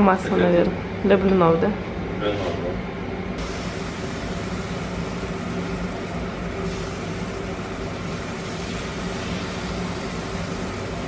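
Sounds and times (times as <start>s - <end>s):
low machine hum: 0.0s - 11.0s
pancakes sizzling in oil: 3.4s - 11.0s.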